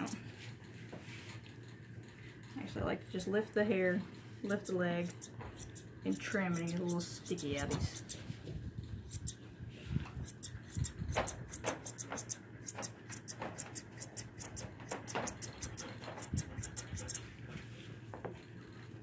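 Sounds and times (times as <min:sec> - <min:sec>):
shears snipping hair: 0:00.0 - 0:00.2, 0:04.4 - 0:08.3, 0:09.0 - 0:09.4, 0:10.2 - 0:17.2.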